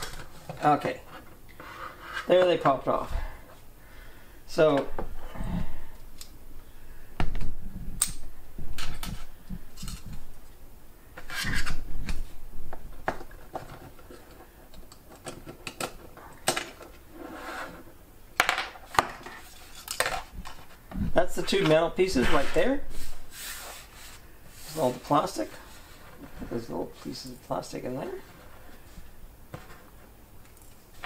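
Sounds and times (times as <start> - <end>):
plastic parts clicking and clattering: 13.0 - 17.0
pieces knocking on desk: 18.4 - 19.3.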